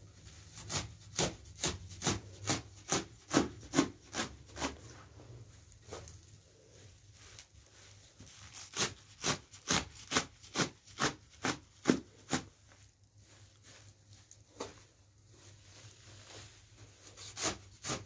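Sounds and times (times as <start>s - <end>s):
knife chopping herbs on metal: 0.6s - 4.8s.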